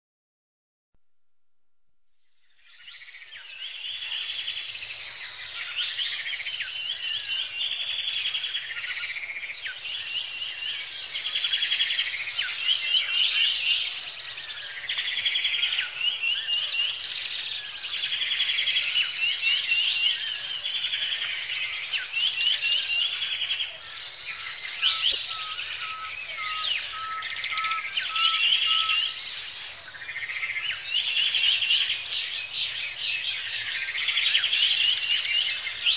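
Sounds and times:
birds chirping and trilling: 2.3 - 35.9
evenly spaced lower bird notes: 18.2 - 32.3.

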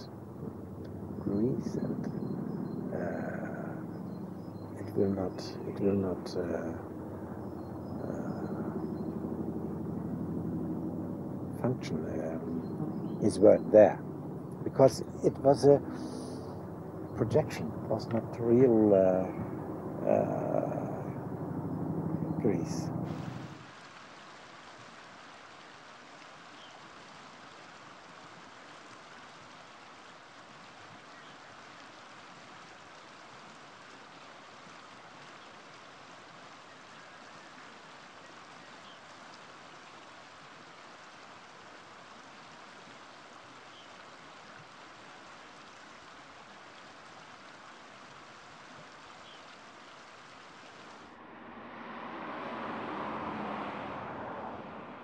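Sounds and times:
faint chirps: 0.0 - 10.7, 11.4 - 23.6
loud low noise: 0.0 - 23.7, 51.0 - 55.0
river rushing: 0.0 - 55.0.

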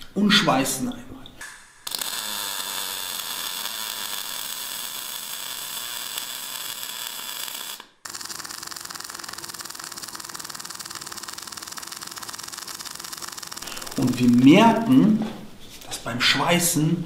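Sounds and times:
welding arc crackling: 1.4 - 14.9.

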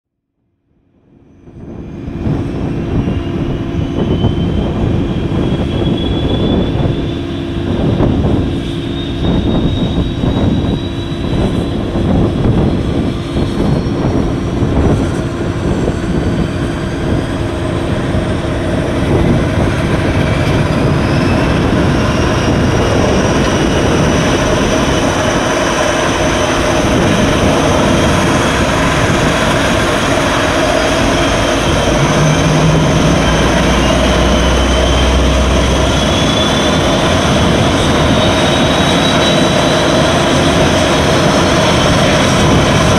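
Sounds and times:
turbine whine rising: 12.3 - 42.9
low engine rumble: 15.2 - 38.7.

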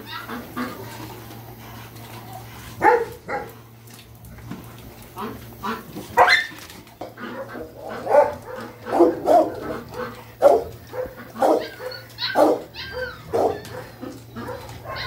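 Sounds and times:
dogs barking: 0.0 - 0.9, 2.8 - 3.7, 5.2 - 15.0
dog whining: 10.5 - 15.0.

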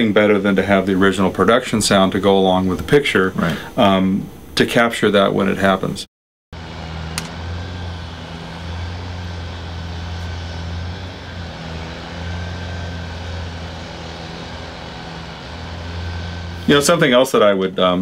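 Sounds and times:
building machinery hum: 6.6 - 17.6.

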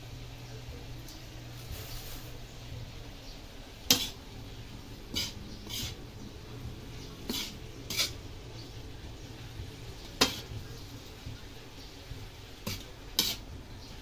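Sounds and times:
metal spatula scraping steel wok: 1.6 - 2.4, 3.8 - 8.9, 9.8 - 11.0, 12.5 - 14.0.

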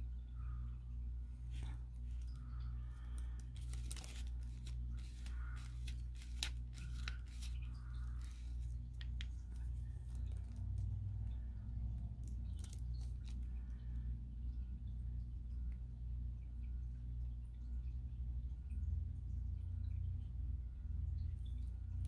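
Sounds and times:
steady low hum: 0.0 - 22.0
paper and pen handling clicks: 3.1 - 10.9.

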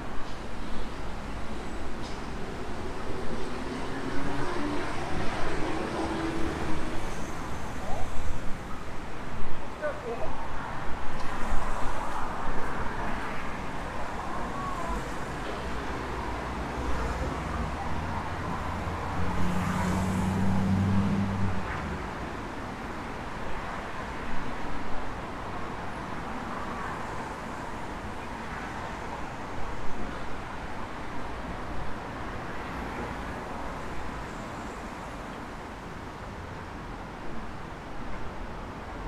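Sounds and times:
road traffic: 0.0 - 39.0
passing vehicle engine hum: 15.7 - 22.1.

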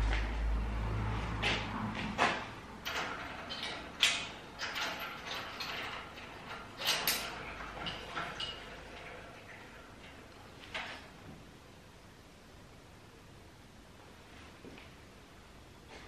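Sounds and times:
metal sculpture clinking: 2.8 - 10.9.

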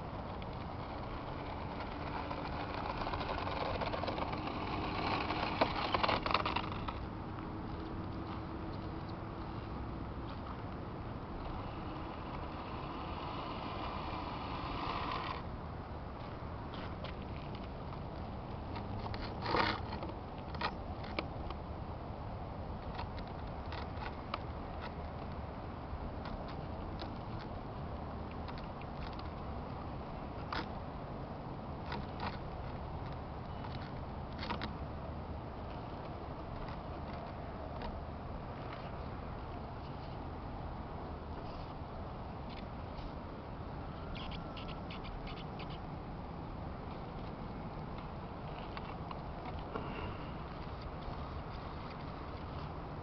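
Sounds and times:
electric motor and propeller: 0.0 - 7.2, 9.5 - 15.6
rustle: 0.0 - 53.0.

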